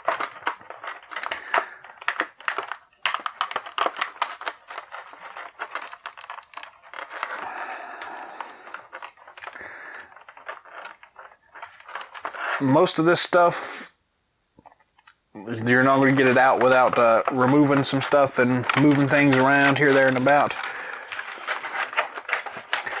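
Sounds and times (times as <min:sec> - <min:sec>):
plastic blister tray crackling: 0:00.0 - 0:13.4, 0:15.5 - 0:23.0.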